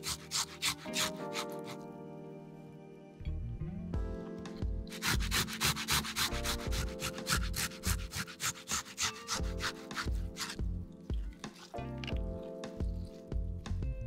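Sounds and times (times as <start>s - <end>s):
tomato grated on metal grater: 0.0s - 1.8s, 4.9s - 10.6s.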